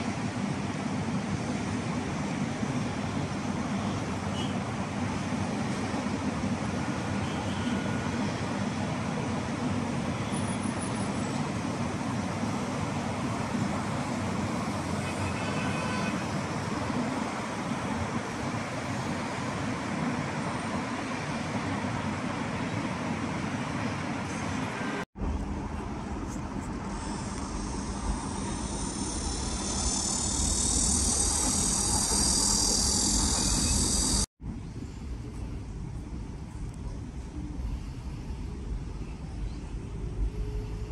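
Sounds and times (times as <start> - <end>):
road traffic noise: 0.0 - 40.9
high-pitched hiss: 26.9 - 34.3.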